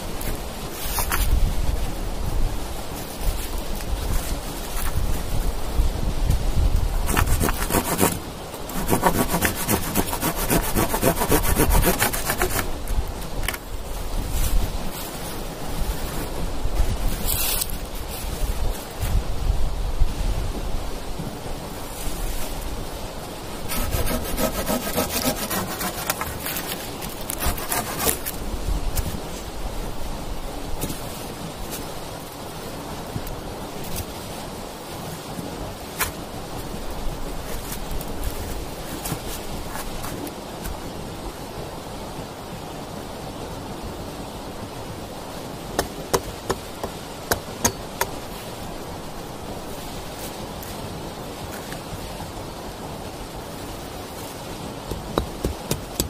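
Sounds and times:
hand saw cutting wood: 7.1s - 12.7s, 23.7s - 28.4s
saw scrapes: 7.1s - 12.7s, 23.7s - 28.4s
sharp wooden knocks: 54.9s - 56.0s.

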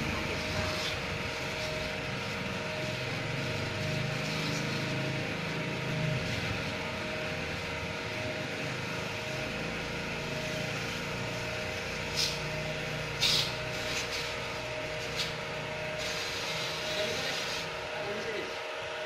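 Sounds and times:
motor humming: 0.0s - 19.0s
short hissing bursts: 13.2s - 14.3s, 16.0s - 17.7s.

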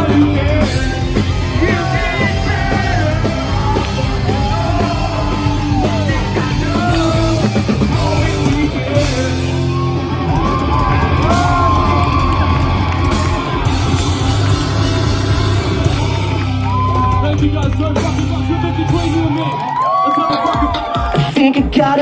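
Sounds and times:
person singing and yelling: 0.0s - 11.9s
live punk rock band: 0.0s - 22.0s.

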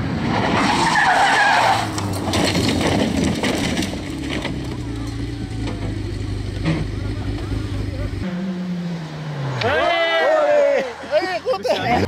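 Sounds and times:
car sliding on gravel: 0.0s - 8.0s
car crunching over rocks: 1.4s - 7.5s
car engine idling: 2.0s - 11.9s.

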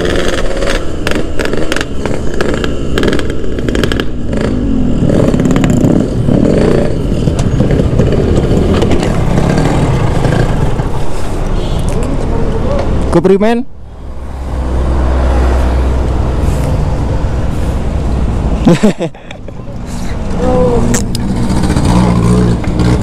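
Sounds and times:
motorcycle engine revving: 0.0s - 11.8s, 20.2s - 23.0s.

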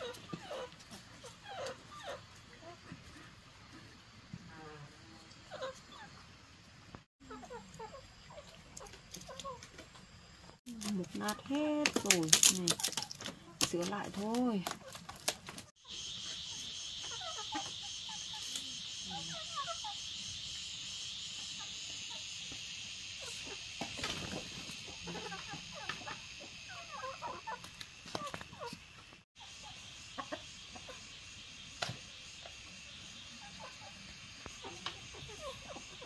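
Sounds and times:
chickens clucking: 0.0s - 4.0s, 5.2s - 6.3s, 7.2s - 10.2s, 10.9s - 36.0s
high insect drone: 15.8s - 28.7s.

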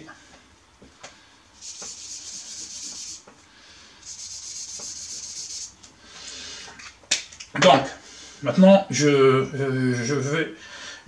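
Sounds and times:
highlighter rubbing across paper: 1.6s - 3.3s, 4.0s - 5.8s.

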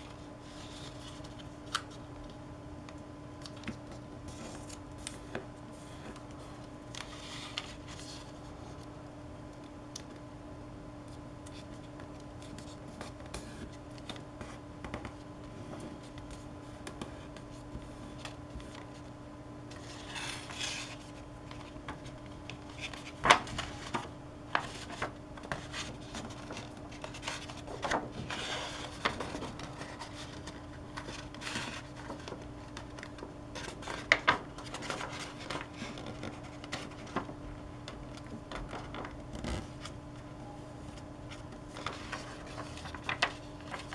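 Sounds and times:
paper rustling and scraping: 3.8s - 8.9s, 19.7s - 37.4s, 40.9s - 43.9s.

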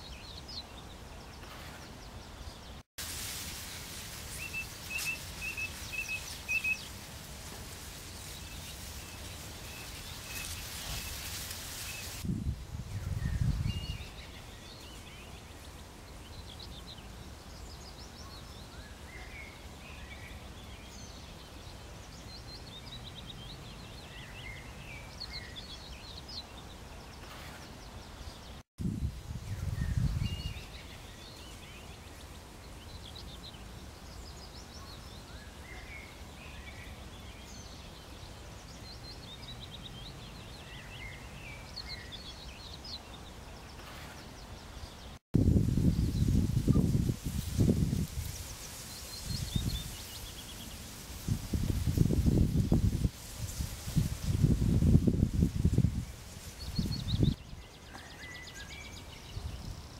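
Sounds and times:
small birds chirping: 0.0s - 59.9s
wind on microphone: 1.4s - 15.3s, 27.2s - 31.6s, 43.8s - 57.8s, 58.6s - 59.9s.

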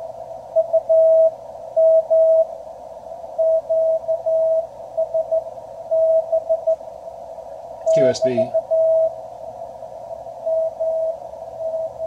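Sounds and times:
receiver hiss: 0.0s - 12.0s
morse code tone: 3.4s - 6.8s, 8.5s - 9.2s, 10.4s - 12.0s.

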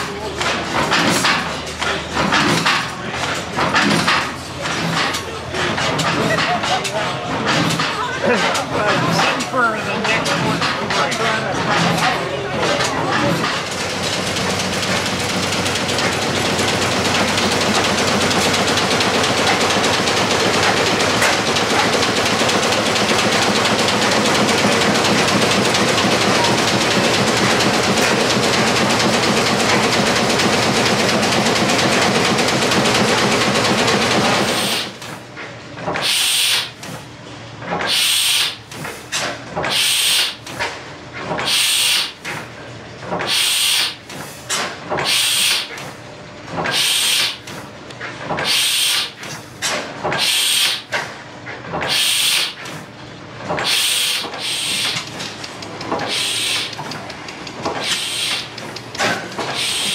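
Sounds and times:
stationary engine roaring: 0.0s - 35.0s
gas engine hissing puffs: 43.3s - 44.4s, 45.0s - 45.7s, 48.4s - 49.2s, 50.2s - 50.9s, 51.9s - 52.6s, 53.6s - 55.1s, 56.0s - 56.8s, 57.8s - 58.6s, 59.5s - 59.9s.

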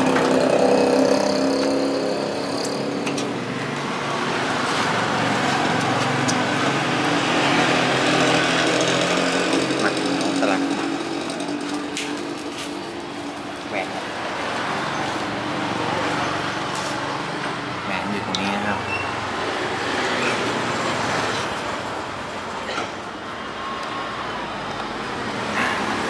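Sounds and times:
engine running: 0.0s - 18.4s.

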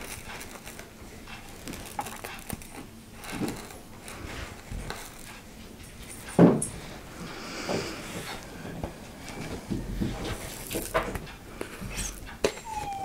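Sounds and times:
tiny resin beads pattering: 0.0s - 5.3s
dog whining: 12.0s - 13.0s.

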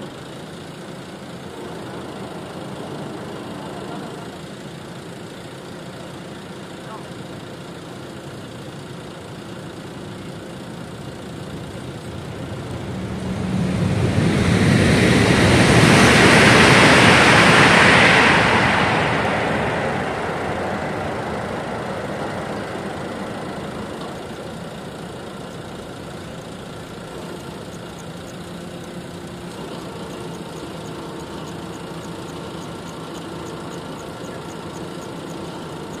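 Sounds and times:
steady background noise: 0.0s - 36.0s
train passing at speed: 1.2s - 4.9s, 10.6s - 26.1s.

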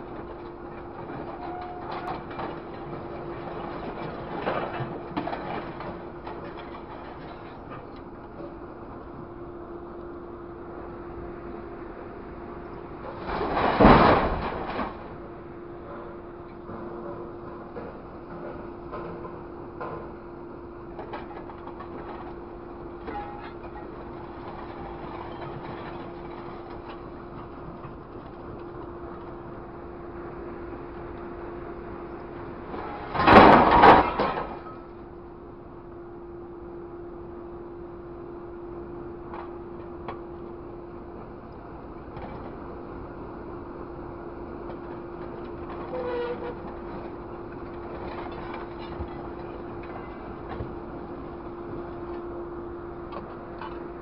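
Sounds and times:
grapple clanking on scrap metal: 0.0s - 8.5s, 13.1s - 15.2s, 23.0s - 28.3s, 32.7s - 34.9s, 45.2s - 50.8s
truck engine and hydraulics whining: 0.0s - 54.0s.

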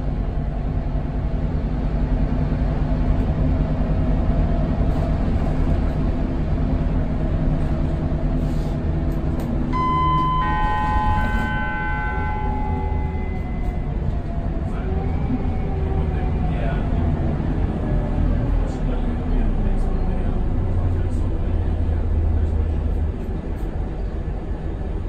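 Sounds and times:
bus diesel engine running: 0.0s - 25.0s
two-tone electronic chime: 9.7s - 13.9s.

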